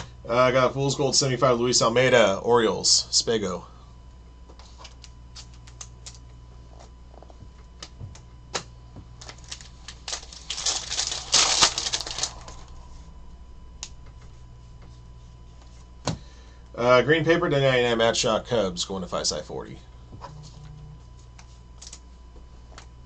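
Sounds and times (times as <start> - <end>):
foil wrapper crinkling: 9.2 - 12.8.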